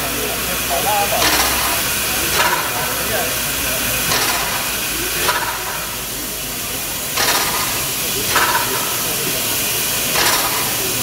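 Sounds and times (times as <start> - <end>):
steam exhaust puffs: 0.0 - 11.0
steam hiss: 0.0 - 11.0.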